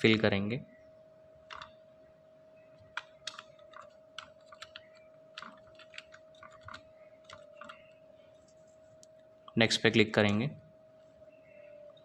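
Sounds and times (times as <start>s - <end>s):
faint steady tone: 0.0s - 12.0s
computer keyboard typing: 1.4s - 1.8s, 2.8s - 8.5s.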